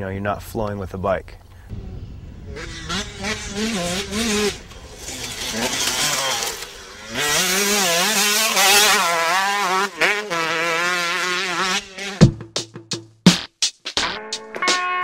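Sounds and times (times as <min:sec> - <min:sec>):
dirt bike engine revving: 0:01.7 - 0:12.3.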